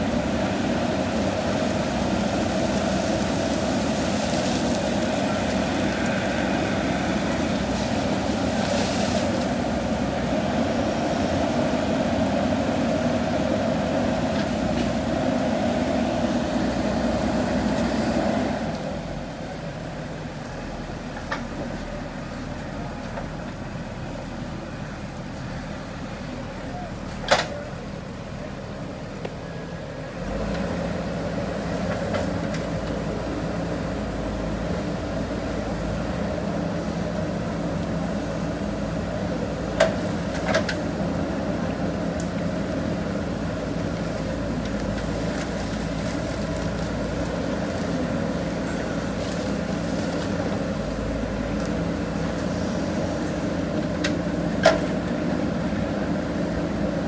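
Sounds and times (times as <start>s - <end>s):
diesel engine under load: 0.0s - 57.0s.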